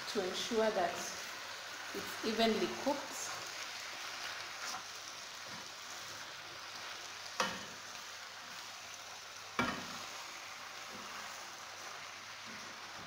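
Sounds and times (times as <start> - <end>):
spinach sizzling in a pan: 0.0 - 13.0
wooden spoon turning food: 1.9 - 8.8
spoon knocking against pan: 9.6 - 9.9.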